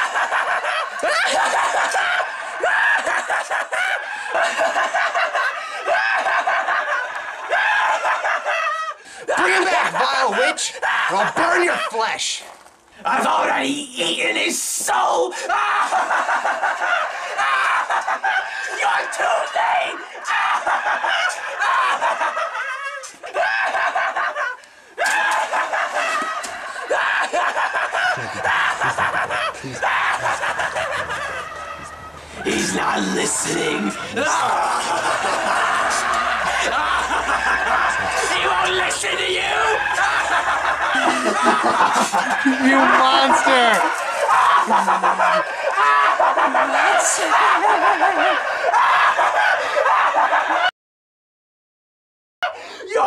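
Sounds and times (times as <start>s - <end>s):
high-pitched cackling laughter: 0.0s - 12.0s, 15.6s - 50.7s.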